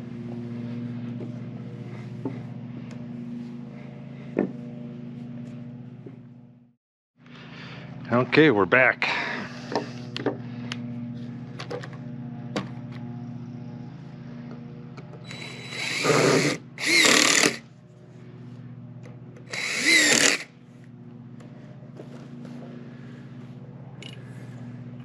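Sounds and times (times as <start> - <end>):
steady low hum: 0.0 - 25.0
impact driver driving screws: 15.3 - 17.6, 19.4 - 20.5.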